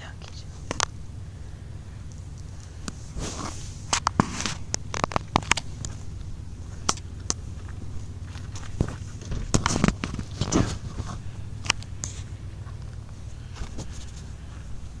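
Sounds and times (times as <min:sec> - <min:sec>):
steady low hum: 0:00.0 - 0:15.0
phone handling clicks and rustles: 0:00.6 - 0:01.0, 0:03.8 - 0:14.3.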